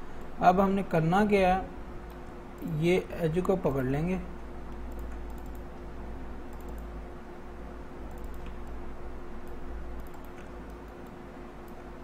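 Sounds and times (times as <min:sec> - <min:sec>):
background hum and hiss: 0:00.0 - 0:12.0
computer mouse clicks: 0:04.7 - 0:05.9, 0:06.5 - 0:06.9, 0:08.0 - 0:08.8, 0:09.4 - 0:11.8.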